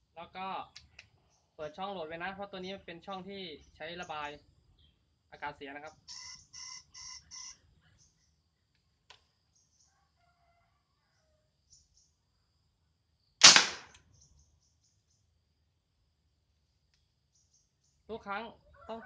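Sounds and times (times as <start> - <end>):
combustion gun bang: 13.4 - 14.0.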